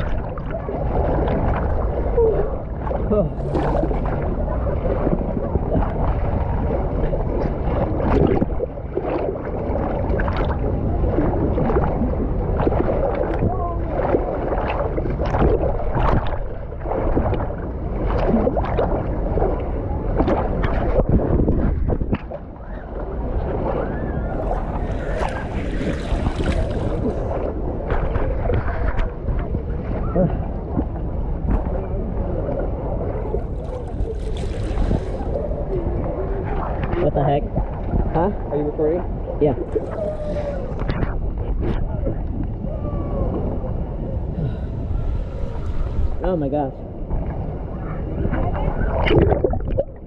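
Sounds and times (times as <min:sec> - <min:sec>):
small water splashes: 0:00.0 - 0:50.0
water sloshing and gurgling: 0:00.0 - 0:50.0
wind buffeting microphone: 0:00.0 - 0:50.0
faint voices: 0:31.4 - 0:37.6, 0:39.5 - 0:46.9.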